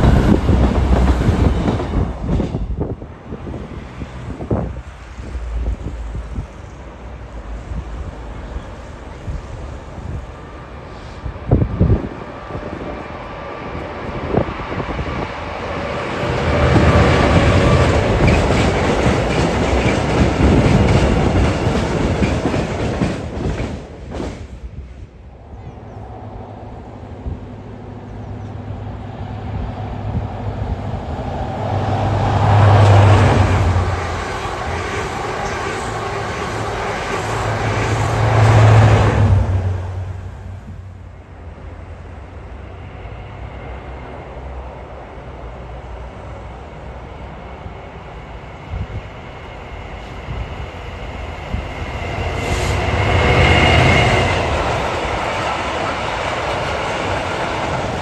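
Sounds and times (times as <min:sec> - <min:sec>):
diesel train engine drone: 0:00.0 - 0:58.0
train wheels on rails: 0:00.0 - 0:58.0.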